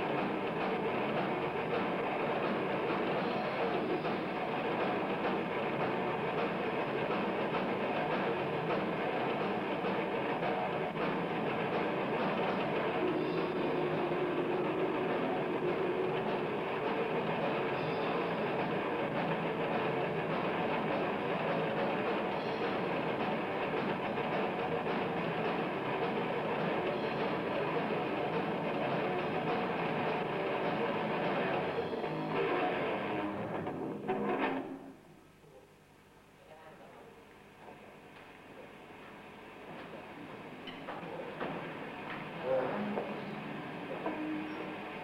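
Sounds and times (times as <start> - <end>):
death metal band playing: 0.0 - 33.7.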